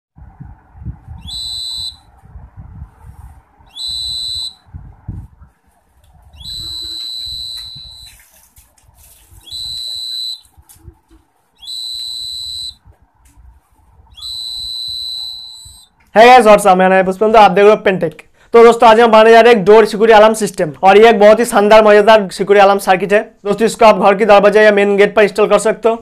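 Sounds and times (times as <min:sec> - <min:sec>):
high steady buzzer beeps: 0:06.4 - 0:08.2, 0:11.6 - 0:12.8.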